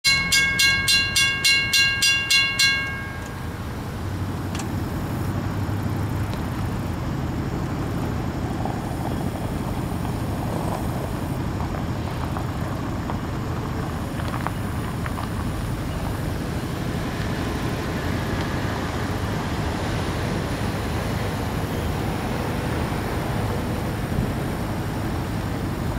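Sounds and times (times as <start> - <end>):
bell ringing quickly: 0.0 - 3.6
diesel locomotives rumbling: 0.0 - 25.9.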